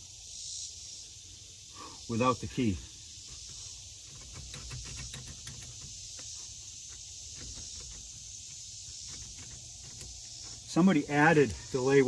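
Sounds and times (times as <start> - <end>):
insects chorus: 0.0 - 12.0
light clicks and knocks: 3.2 - 10.8.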